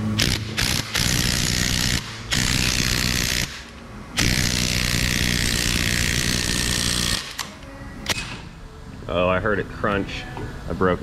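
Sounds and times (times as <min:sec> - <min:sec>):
power tool running: 0:00.0 - 0:07.5.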